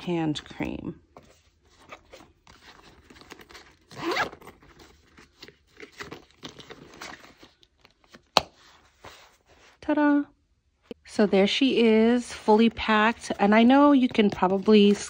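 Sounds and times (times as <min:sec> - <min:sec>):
bag rustling and clicking: 0:01.7 - 0:08.3, 0:12.4 - 0:15.0
zipper pulled shut: 0:03.4 - 0:04.7.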